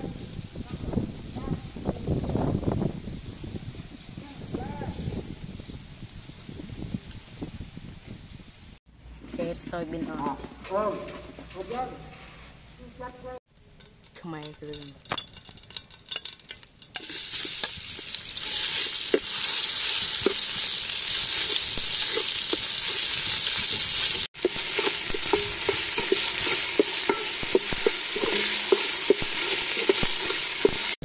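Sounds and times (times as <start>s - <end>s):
curry paste sizzling in oil: 15.4s - 31.0s
metal ladle scraping pot: 16.9s - 31.0s.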